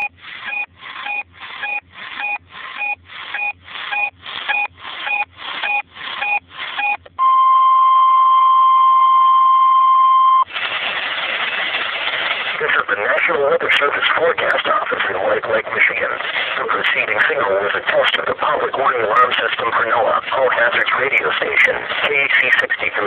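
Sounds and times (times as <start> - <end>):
steady warning alarm tone: 0.0 - 10.4
short beeps: 0.0 - 10.5
hissy radio broadcast audio: 12.3 - 23.0.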